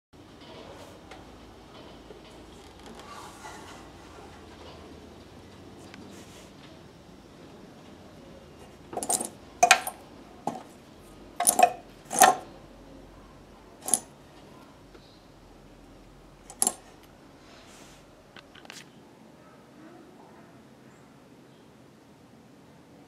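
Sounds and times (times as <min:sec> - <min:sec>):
metal bobbins clinking: 0:08.9 - 0:10.8, 0:11.4 - 0:12.5, 0:13.8 - 0:14.1, 0:16.4 - 0:17.1.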